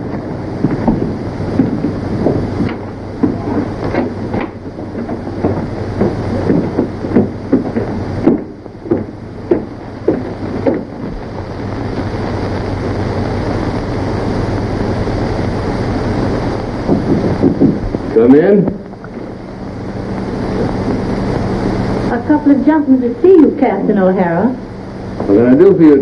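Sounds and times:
footsteps on wooden stairs: 0.0s - 11.2s, 16.8s - 18.1s
film soundtrack hiss and hum: 0.0s - 26.0s.

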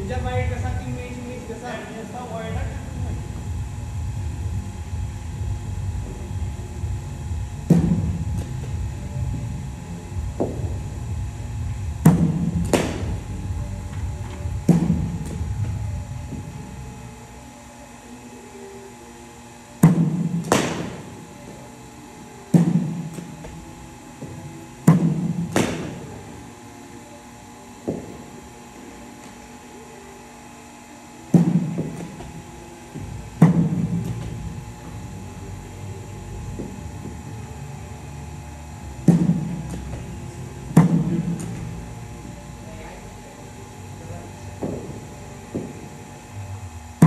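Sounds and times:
cricket bat striking balls: 7.6s - 8.7s, 10.4s - 10.7s, 12.0s - 13.2s, 14.6s - 15.8s, 19.8s - 21.1s, 24.2s - 26.2s, 31.3s - 34.6s, 39.0s - 41.8s, 44.6s - 46.1s.

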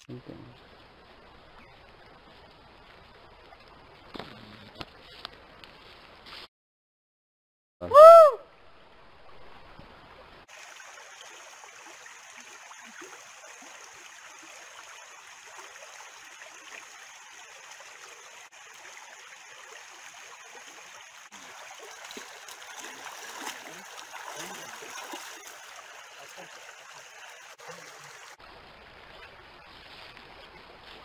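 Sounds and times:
water trickling in a channel: 10.4s - 31.0s.

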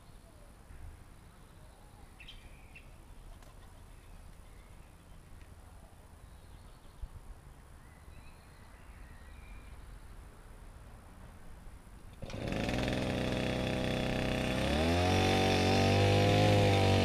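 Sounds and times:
bird chirps: 0.0s - 5.4s, 7.8s - 10.2s.

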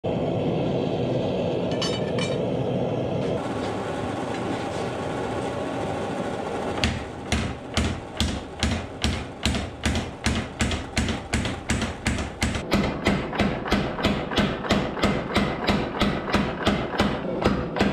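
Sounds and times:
gas forge burner roaring: 0.0s - 17.9s
power hammer striking steel: 1.7s - 2.5s, 6.8s - 17.9s.

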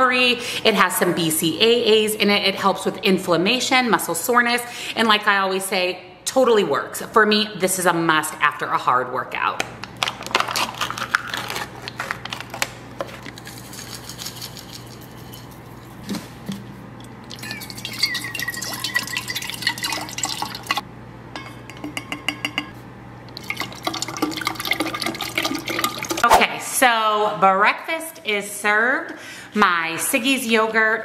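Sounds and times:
drips and clinks: 17.0s - 20.8s, 23.4s - 26.2s
liquid pouring into metal bottle: 17.2s - 20.8s, 23.4s - 26.2s.

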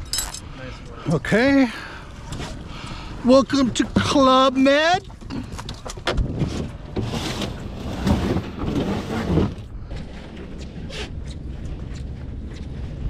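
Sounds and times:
dense rustling: 6.2s - 10.5s.

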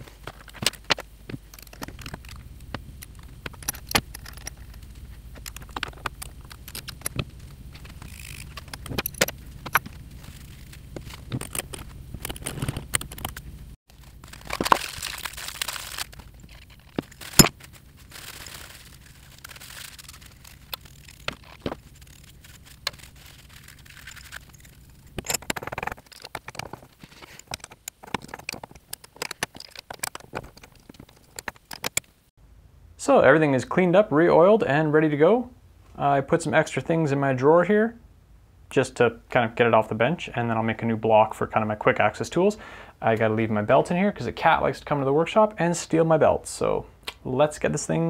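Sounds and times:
metal parts clicking and clinking: 0.3s - 32.1s.

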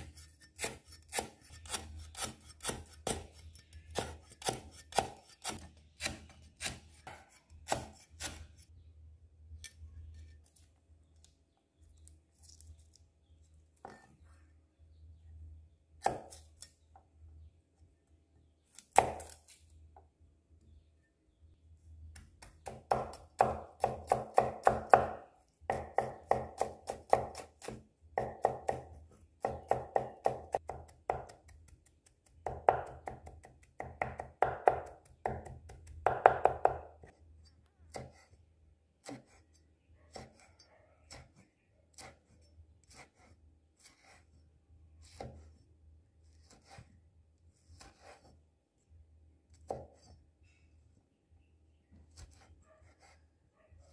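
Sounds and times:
cleaver chopping on wooden board: 0.6s - 8.4s, 16.0s - 16.4s, 22.2s - 31.8s, 32.4s - 36.9s.

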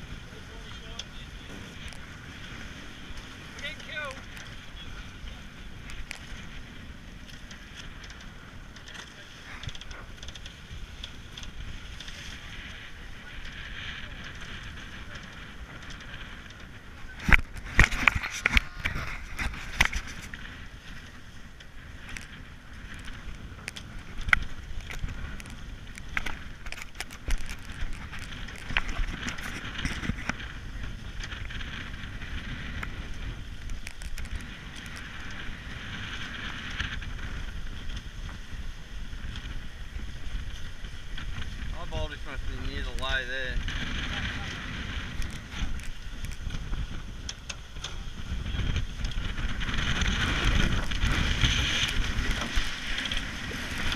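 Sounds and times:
water rushing past boat: 0.0s - 53.9s
wind rushing: 34.2s - 53.9s.

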